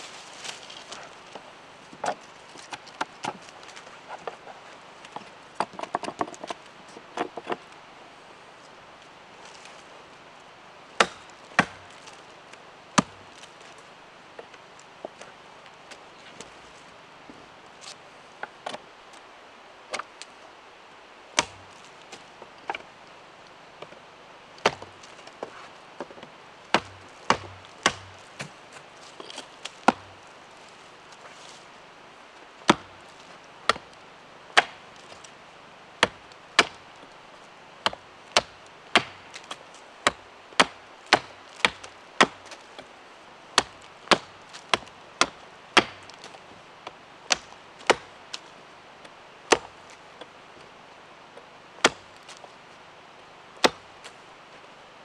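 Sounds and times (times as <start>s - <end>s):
hatchet chopping wood: 11.0s - 12.0s, 13.0s - 13.2s, 21.4s - 21.7s, 24.6s - 25.0s, 26.0s - 28.5s, 29.2s - 30.1s, 32.7s - 33.0s, 33.7s - 33.9s, 34.6s - 34.9s, 36.0s - 36.9s, 37.8s - 42.9s, 43.6s - 48.1s, 49.5s - 49.8s, 51.8s - 52.1s, 53.6s - 53.9s
blade knocking a branch: 26.8s - 28.6s, 29.2s - 30.1s, 32.7s - 32.9s, 43.6s - 46.4s.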